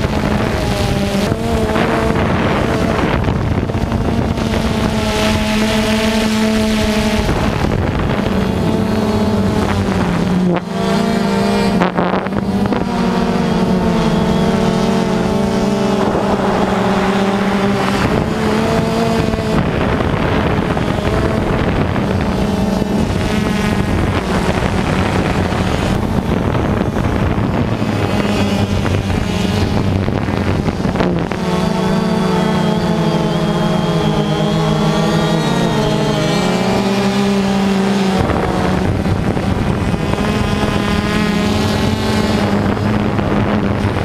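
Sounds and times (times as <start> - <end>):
drone motor hum: 0.0 - 44.0
wind on microphone: 0.0 - 44.0.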